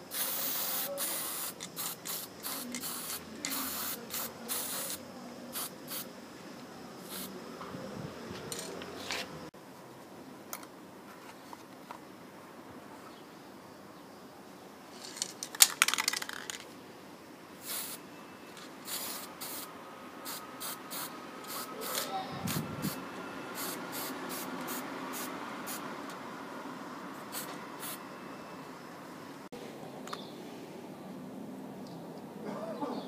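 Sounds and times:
spray paint can hissing: 0:00.1 - 0:06.1, 0:07.0 - 0:07.3, 0:17.6 - 0:18.0, 0:18.8 - 0:23.0, 0:23.6 - 0:25.8, 0:27.2 - 0:28.0.

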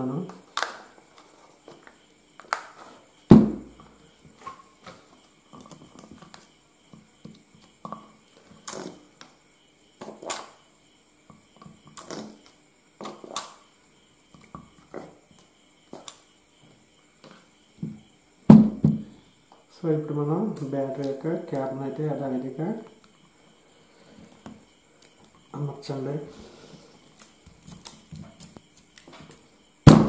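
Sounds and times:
louder thump: 0:03.3 - 0:03.8, 0:18.5 - 0:19.1.

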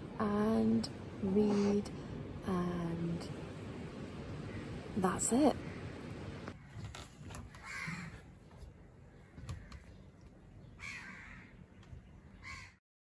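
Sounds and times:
faint outdoor background: 0:00.0 - 0:12.8
bird harsh calls: 0:07.5 - 0:08.3, 0:09.1 - 0:11.6, 0:12.3 - 0:12.8.

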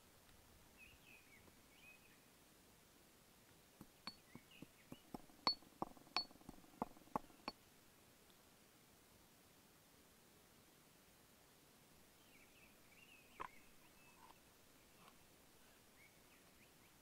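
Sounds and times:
faint bird chirp: 0:00.7 - 0:02.4, 0:03.5 - 0:07.6, 0:12.1 - 0:17.0
pestle clinking in stone mortar: 0:03.8 - 0:07.5.

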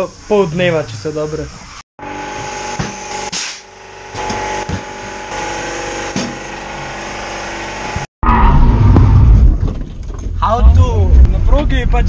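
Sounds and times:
tyre machine motor whine: 0:01.6 - 0:08.1.

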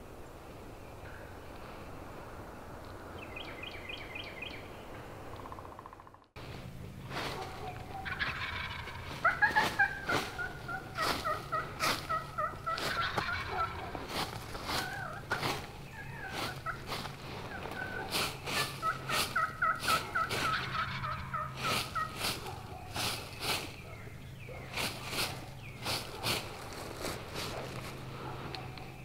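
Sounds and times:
wild turkey yelping: 0:07.2 - 0:29.0.

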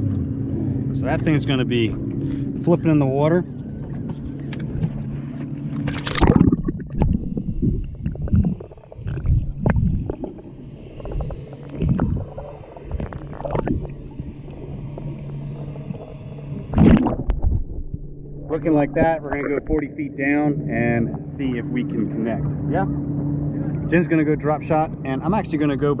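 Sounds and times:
muffled underwater sloshing: 0:00.0 - 0:26.0
steady low hum: 0:00.0 - 0:26.0
splash into water: 0:05.9 - 0:07.2.

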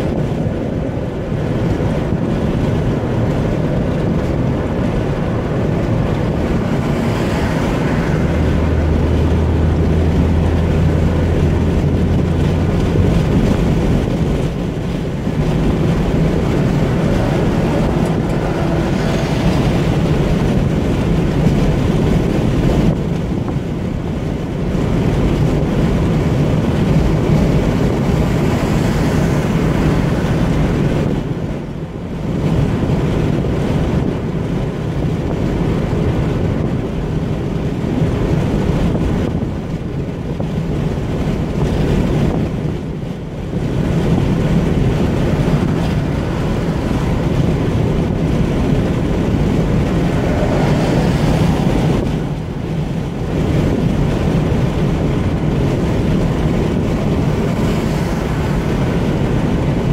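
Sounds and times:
low engine drone: 0:00.0 - 0:59.9
tyre and wind noise: 0:00.0 - 0:59.9.

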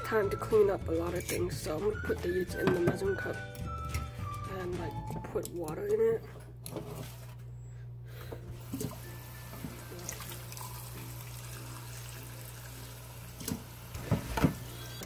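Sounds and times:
faucet water running into cup: 0:08.6 - 0:15.0.

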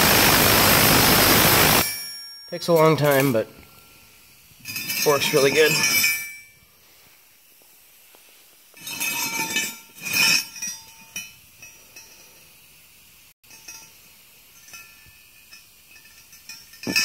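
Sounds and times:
scraping and rubbing on metal: 0:08.2 - 0:12.4.

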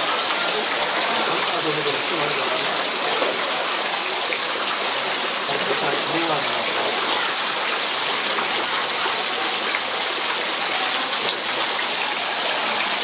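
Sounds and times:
water rushing and splashing: 0:00.0 - 0:13.0.

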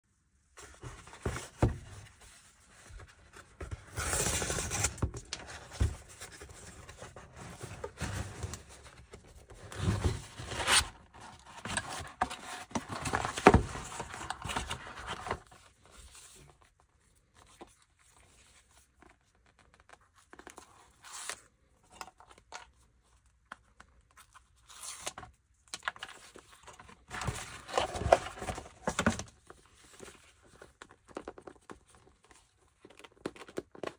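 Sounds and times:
cardboard flaps rustling and scraping: 0:00.6 - 0:16.6, 0:26.6 - 0:31.8.

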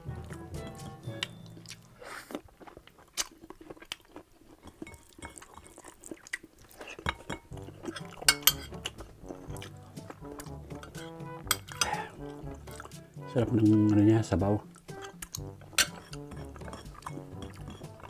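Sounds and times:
chewing and mouth noises: 0:00.0 - 0:18.0
metal spoon clinks: 0:08.0 - 0:08.8.

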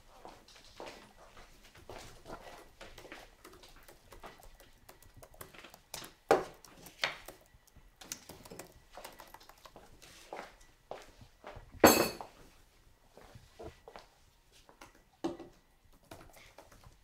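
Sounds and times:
laptop keyboard typing: 0:02.8 - 0:10.1, 0:15.9 - 0:17.0.

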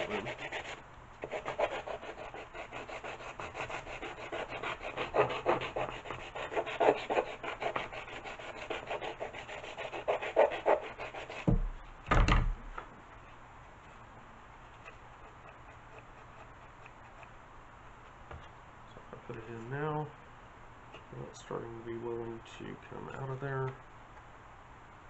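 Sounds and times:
sanding block rubbing: 0:00.0 - 0:11.5.

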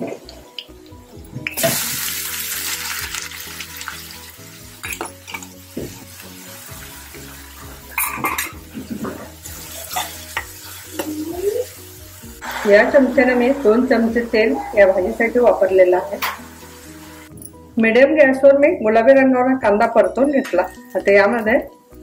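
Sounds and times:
onions sizzling in oil: 0:01.4 - 0:17.4
metal spoon scraping pan: 0:08.0 - 0:10.5.

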